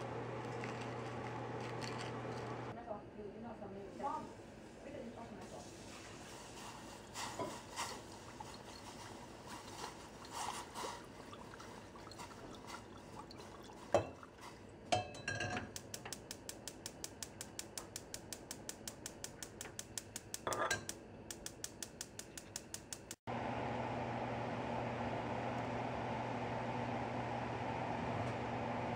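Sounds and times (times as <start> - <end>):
liquid pouring from glass bottle: 8.1 - 14.5
glass clinking against metal pot: 14.9 - 15.7, 20.4 - 20.9
gas burner igniter clicking: 15.7 - 23.2.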